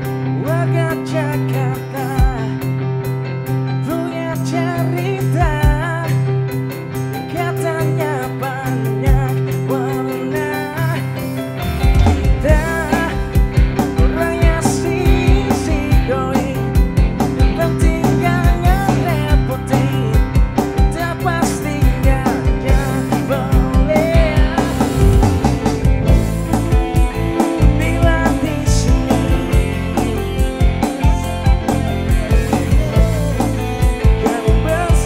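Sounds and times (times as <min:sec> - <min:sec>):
bass guitar: 0:00.0 - 0:35.0
drums: 0:00.0 - 0:35.0
electric guitar: 0:00.0 - 0:35.0
man singing: 0:00.3 - 0:02.7, 0:03.8 - 0:06.3, 0:07.2 - 0:11.4, 0:12.2 - 0:35.0.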